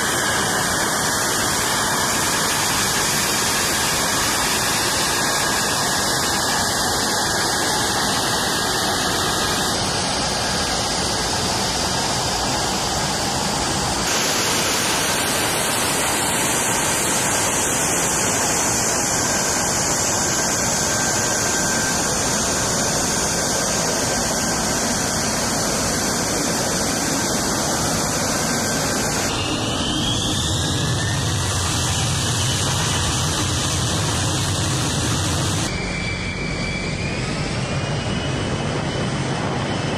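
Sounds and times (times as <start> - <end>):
high whine sliding down: 0.0 - 39.9
jet engine running: 0.0 - 39.9.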